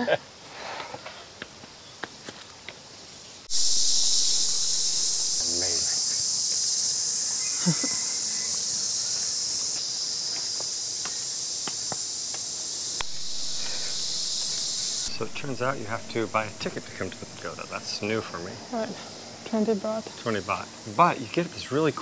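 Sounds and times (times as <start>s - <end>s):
high-pitched insect chorus: 3.0s - 22.0s.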